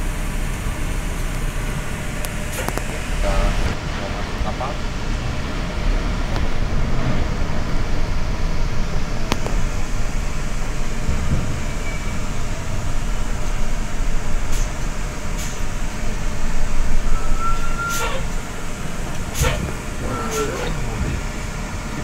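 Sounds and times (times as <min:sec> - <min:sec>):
bus engine low rumble: 0:00.0 - 0:22.0.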